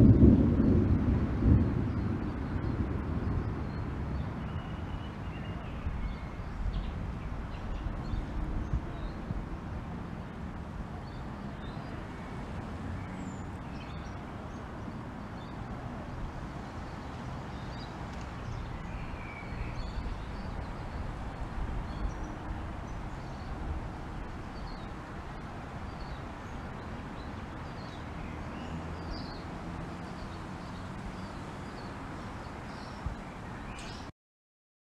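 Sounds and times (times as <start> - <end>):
low rumbling: 0.0 - 4.7
light rain falling: 0.0 - 34.1.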